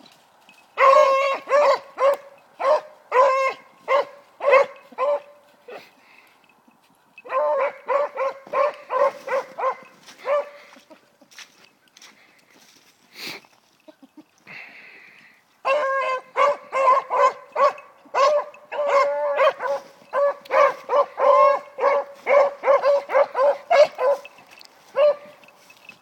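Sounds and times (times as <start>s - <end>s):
hound baying: 0.7s - 6.4s, 7.2s - 11.0s, 15.6s - 26.0s.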